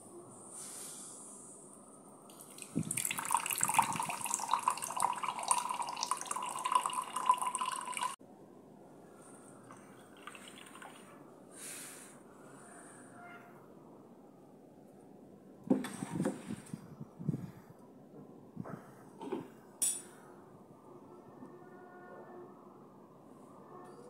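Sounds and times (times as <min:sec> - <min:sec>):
faint liquid trickle: 0:02.3 - 0:08.2, 0:09.6 - 0:11.2
juice pouring into a glass: 0:02.3 - 0:08.2, 0:09.7 - 0:11.2.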